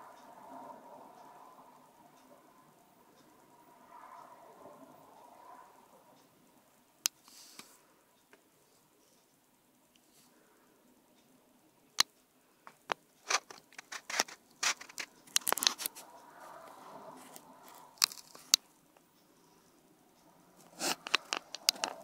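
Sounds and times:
soft rustle: 0:07.2 - 0:08.0, 0:08.6 - 0:11.3, 0:12.4 - 0:19.7
sharp clicks and crackles: 0:12.0 - 0:19.3, 0:20.6 - 0:22.0.

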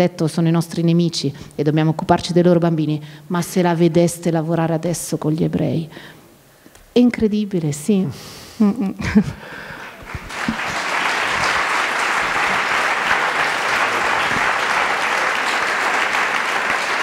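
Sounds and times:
audience applauding: 0:09.9 - 0:17.0.

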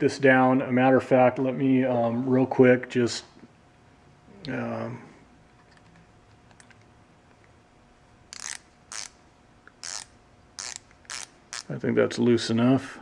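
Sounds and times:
ratcheting screwdriver rasps: 0:08.3 - 0:09.2, 0:09.8 - 0:11.7.

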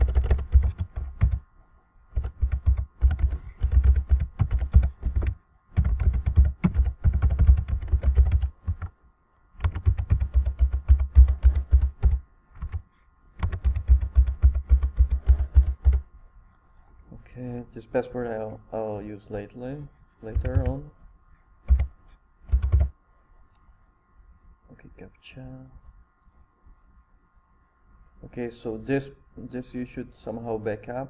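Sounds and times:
typing on computer keyboard: 0:00.0 - 0:01.4, 0:02.1 - 0:08.9, 0:09.6 - 0:16.0, 0:20.3 - 0:20.8, 0:21.6 - 0:22.9.

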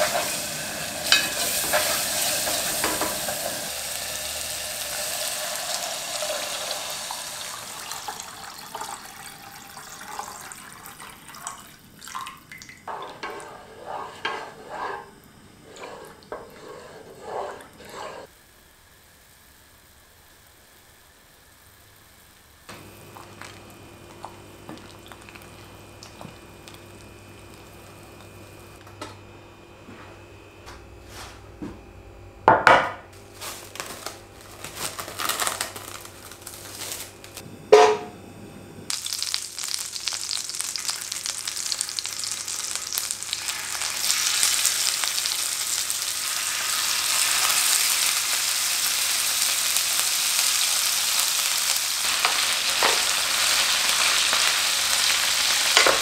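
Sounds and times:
chicken sizzling in grill pan: 0:00.0 - 0:11.0, 0:38.9 - 0:56.0
cling film crackling: 0:33.4 - 0:37.4.

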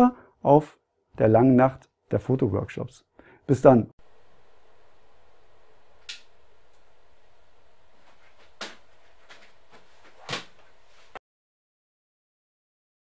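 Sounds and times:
faint steady hiss: 0:04.0 - 0:11.2.

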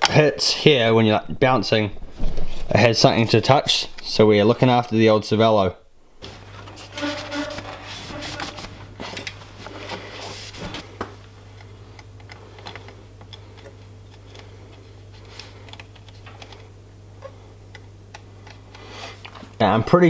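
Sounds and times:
steady low hum: 0:00.0 - 0:20.0
rustling and rubbing: 0:02.0 - 0:03.2, 0:06.2 - 0:10.9.

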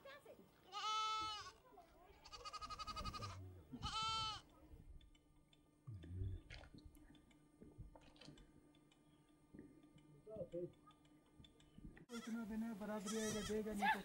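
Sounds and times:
goat bleating: 0:00.7 - 0:01.6, 0:02.2 - 0:04.5, 0:12.1 - 0:12.4, 0:13.0 - 0:14.0.

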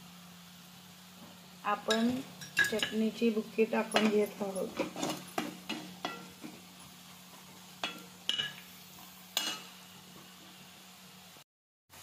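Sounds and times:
onions frying in oil: 0:00.0 - 0:12.0
spoon clinking against pan: 0:01.9 - 0:03.0, 0:03.9 - 0:06.6, 0:07.8 - 0:08.6, 0:09.4 - 0:09.7.

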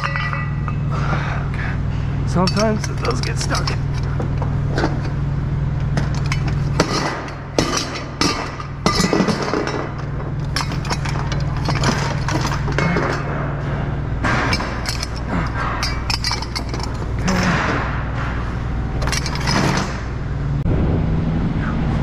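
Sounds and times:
steel chains clanking: 0:00.0 - 0:01.0, 0:02.3 - 0:18.2, 0:18.9 - 0:20.3
steady low hum: 0:00.0 - 0:22.0.

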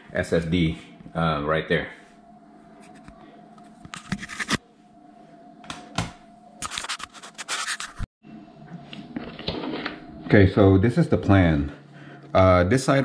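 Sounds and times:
faint steady hum: 0:00.0 - 0:06.9
scratching handling noises: 0:06.6 - 0:08.1.

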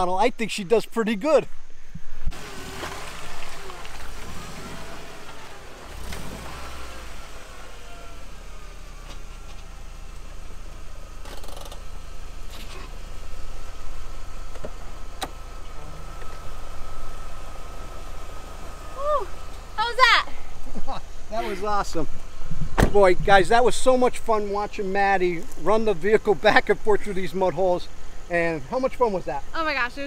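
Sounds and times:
car engine idling: 0:01.2 - 0:30.0
car door opening click: 0:14.5 - 0:15.4.

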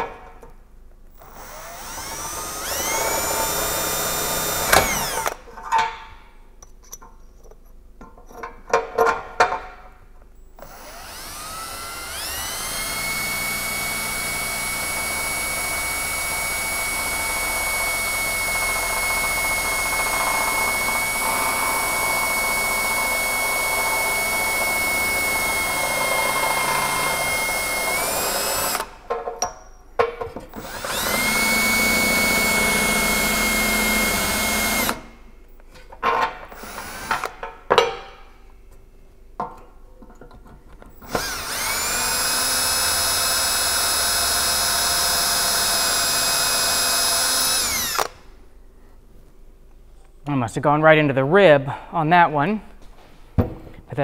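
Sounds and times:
cordless drill whining: 0:01.1 - 0:05.4, 0:10.6 - 0:29.0, 0:30.5 - 0:35.1, 0:36.5 - 0:37.3, 0:40.9 - 0:48.2.

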